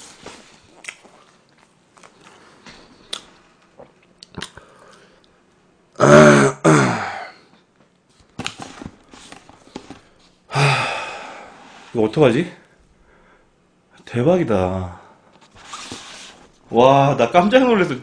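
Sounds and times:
man clearing throat: 6.0 - 7.4.

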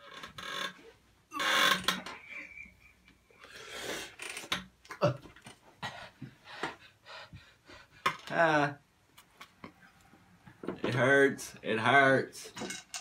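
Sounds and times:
person breathing hard: 3.3 - 4.2, 5.8 - 8.2.

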